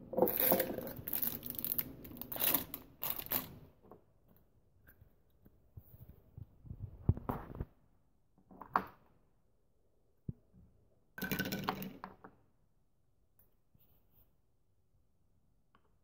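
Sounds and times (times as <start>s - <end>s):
plastic containers clicking and knocking: 0.1s - 3.4s, 11.2s - 12.2s.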